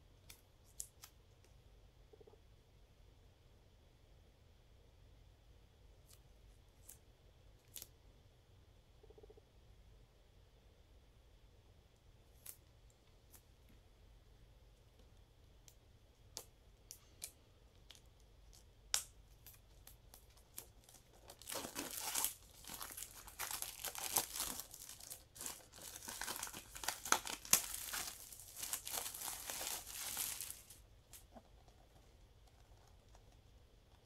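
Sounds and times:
shrink wrap crinkling and tearing: 0:16.3 - 0:33.4.

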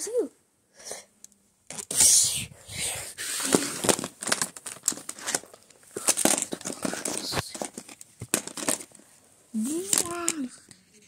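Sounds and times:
crinkling and rustling: 0:01.7 - 0:02.1, 0:03.2 - 0:10.9.

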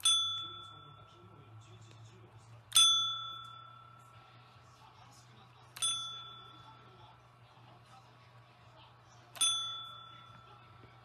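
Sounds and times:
service bell ding: 0:00.0 - 0:01.3, 0:02.7 - 0:04.2, 0:05.8 - 0:06.8, 0:09.4 - 0:10.6.

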